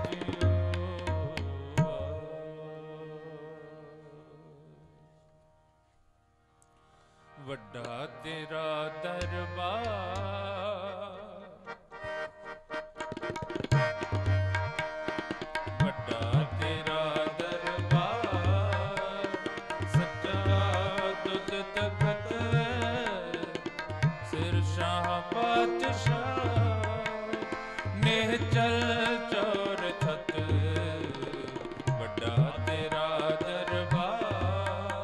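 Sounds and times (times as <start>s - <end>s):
harmonium tones: 0.0s - 35.0s
tabla strokes: 12.7s - 35.0s.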